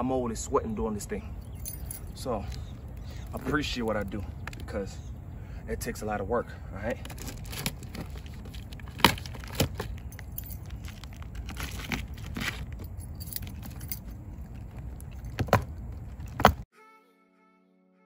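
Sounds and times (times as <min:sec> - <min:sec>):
keys jangling: 0:01.4 - 0:03.4, 0:09.8 - 0:16.4.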